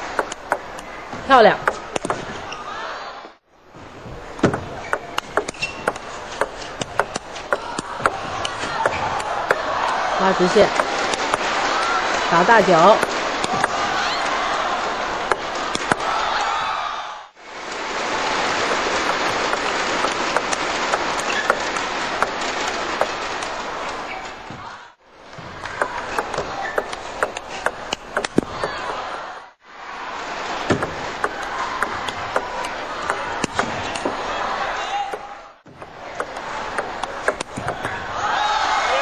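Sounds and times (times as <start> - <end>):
table tennis ball clicking: 0.0 - 0.9, 1.6 - 2.3, 4.4 - 10.0, 18.7 - 23.5, 25.6 - 29.2, 30.7 - 34.1, 35.1 - 38.0
crowd noise and applause: 0.0 - 39.0.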